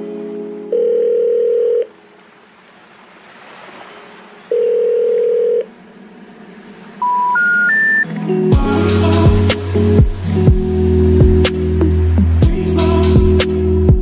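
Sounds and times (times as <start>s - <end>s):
long electronic beeps: 7.0s - 8.1s.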